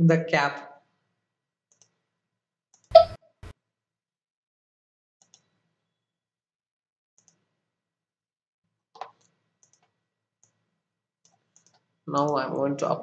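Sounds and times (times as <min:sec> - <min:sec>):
computer mouse clicks: 0:01.7 - 0:02.0, 0:09.0 - 0:10.6, 0:11.2 - 0:11.9.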